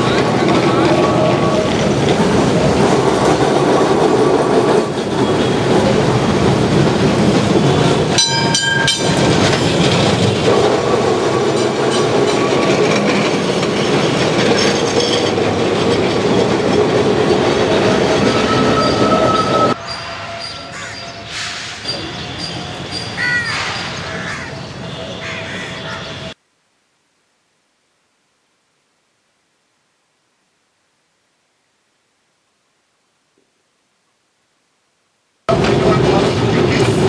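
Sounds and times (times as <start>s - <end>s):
wheels clicking over rails: 0.0s - 19.8s
tram wheels rumbling: 0.0s - 26.4s, 35.5s - 37.0s
wheels squealing: 0.0s - 26.4s
sharp metallic clanks: 8.1s - 10.8s.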